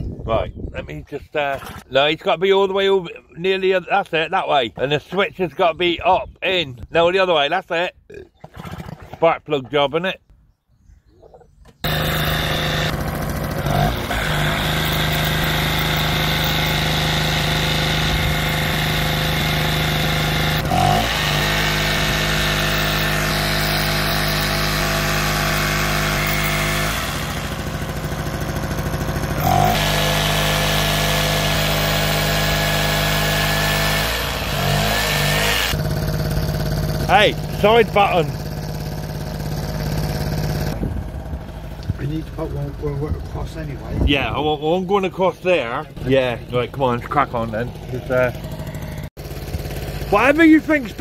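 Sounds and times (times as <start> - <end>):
generator engine running: 11.8 - 51.0.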